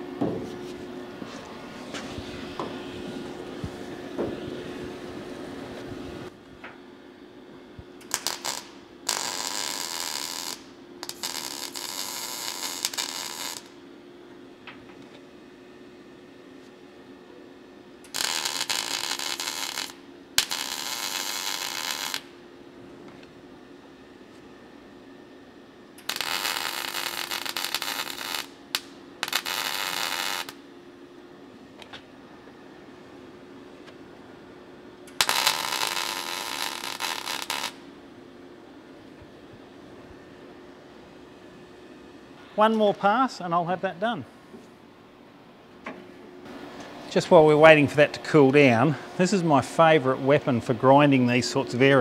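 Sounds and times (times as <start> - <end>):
welding arc crackling: 8.0 - 13.8, 18.0 - 22.4, 26.0 - 30.6, 35.1 - 37.9.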